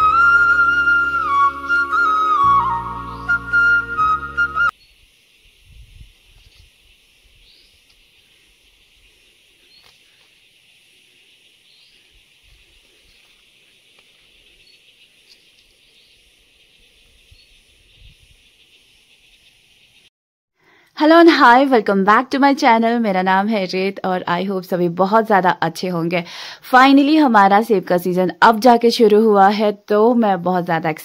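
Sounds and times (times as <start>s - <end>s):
high-pitched insect hiss: 4.7s - 20.1s
wind rumble on microphone: 5.4s - 7.6s, 17.0s - 18.5s.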